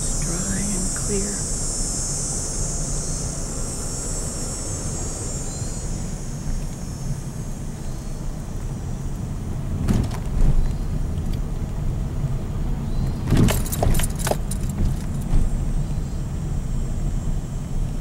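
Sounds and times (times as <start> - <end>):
car road and engine rumble: 0.0 - 18.0
light clinking rattles: 13.3 - 15.5.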